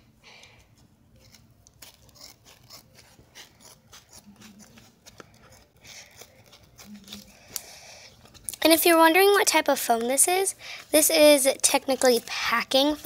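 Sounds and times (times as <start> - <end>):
scissors cutting foam: 1.2 - 8.6.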